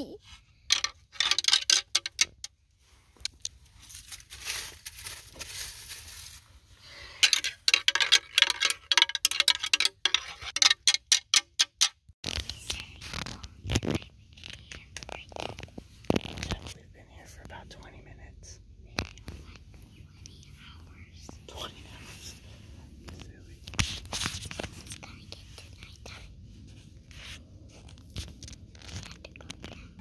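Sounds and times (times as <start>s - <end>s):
deer antlers rattling together: 0.7s - 2.5s, 7.1s - 11.9s.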